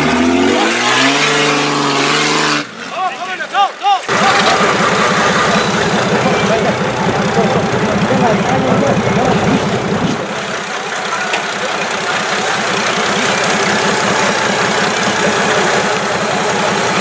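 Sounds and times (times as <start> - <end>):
diesel engine clattering at low revs: 4.1 - 17.0.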